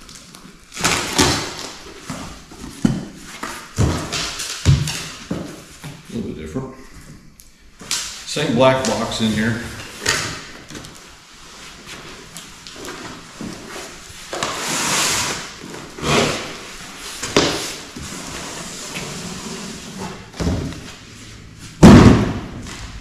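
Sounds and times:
cardboard scraping and rustling: 0:08.9 - 0:21.8
heavy box thud: 0:21.8 - 0:22.9.

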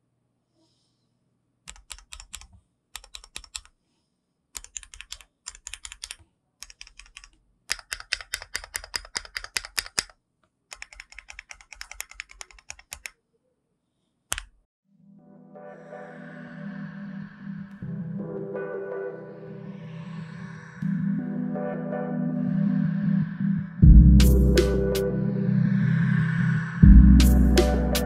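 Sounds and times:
mechanical keyboard keystroke clacks: 0:01.7 - 0:03.7, 0:04.6 - 0:13.1.

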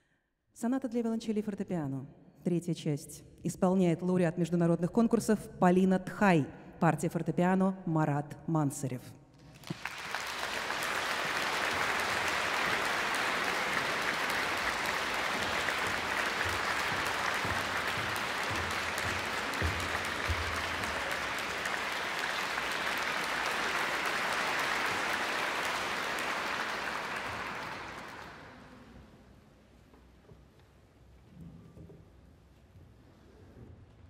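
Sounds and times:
audience applauding: 0:09.4 - 0:28.9.

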